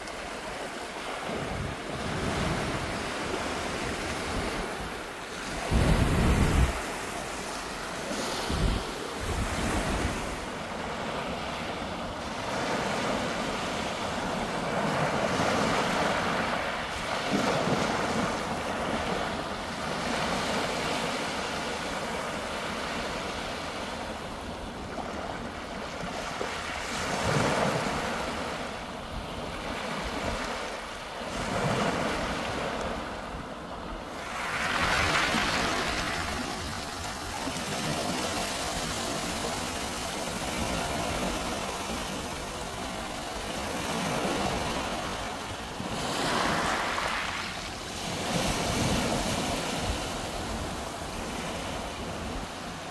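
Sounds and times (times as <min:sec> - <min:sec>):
wind buffeting microphone: 0:01.2 - 0:10.5
waves breaking on pebble beach: 0:34.1 - 0:52.8.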